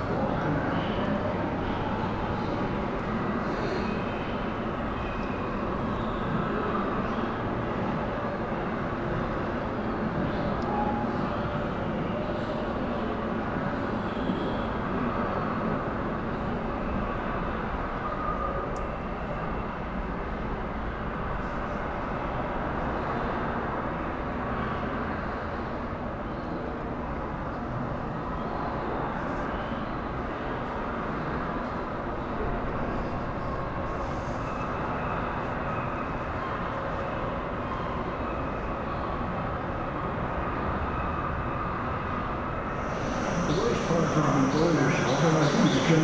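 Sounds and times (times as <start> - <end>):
exhibition hall rumble: 41.8 - 46.0.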